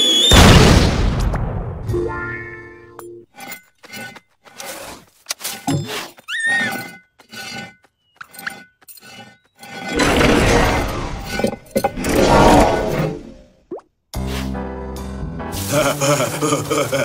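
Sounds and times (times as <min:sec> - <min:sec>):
rising squeak: 0:05.5 - 0:13.1.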